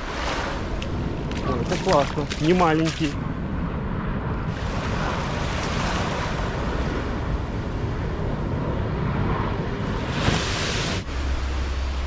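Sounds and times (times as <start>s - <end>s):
small waves washing on beach: 0.0s - 3.3s, 4.5s - 7.6s, 9.8s - 12.0s
wind buffeting microphone: 0.0s - 12.0s.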